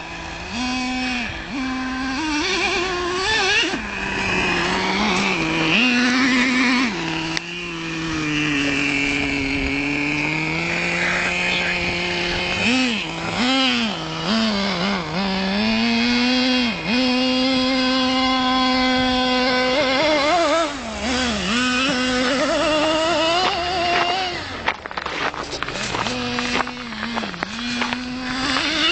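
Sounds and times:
nitro engine running at high revs: 0.0s - 28.9s.

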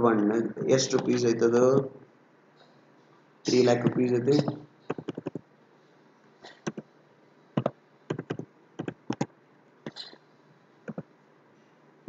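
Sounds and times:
computer keyboard typing: 3.8s - 5.4s, 6.5s - 6.9s, 7.6s - 9.3s.

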